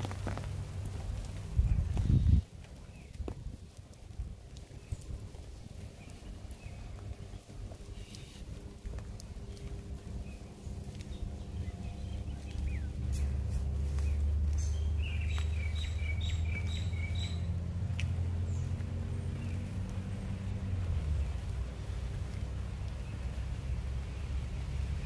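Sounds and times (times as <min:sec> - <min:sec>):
low mechanical hum: 0:03.0 - 0:25.0
bird chirping: 0:09.3 - 0:17.6.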